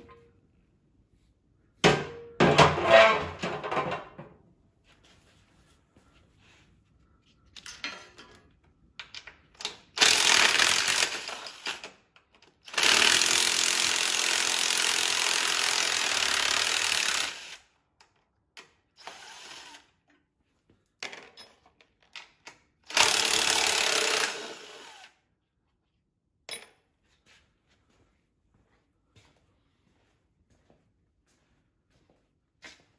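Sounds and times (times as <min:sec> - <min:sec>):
cordless drill running: 0:10.0 - 0:11.9, 0:12.7 - 0:17.7, 0:19.0 - 0:19.9, 0:22.9 - 0:25.2.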